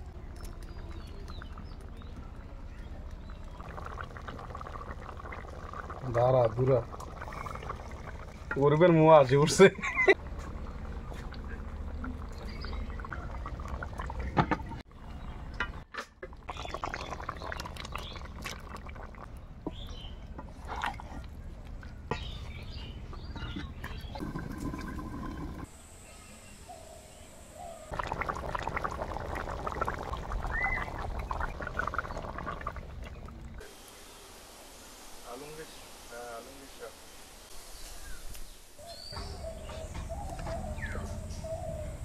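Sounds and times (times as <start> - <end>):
curry bubbling and sputtering: 0.0 - 14.9, 15.7 - 25.7, 27.9 - 33.7.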